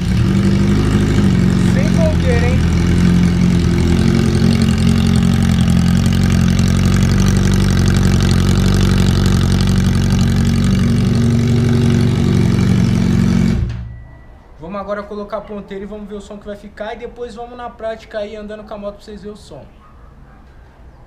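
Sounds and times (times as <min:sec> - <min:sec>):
motorcycle engine idling: 0:00.0 - 0:13.7.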